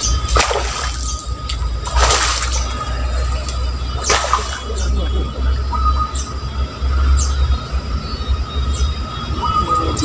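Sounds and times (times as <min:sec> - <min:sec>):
fish splashing in water: 0:00.0 - 0:05.1.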